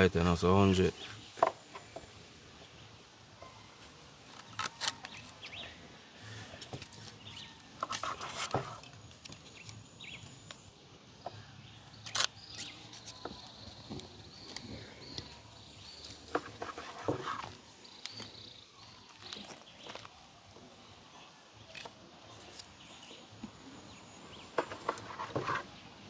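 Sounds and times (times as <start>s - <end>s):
sticks knocking and scraping: 6.6s - 9.8s, 16.0s - 18.3s, 24.6s - 25.7s.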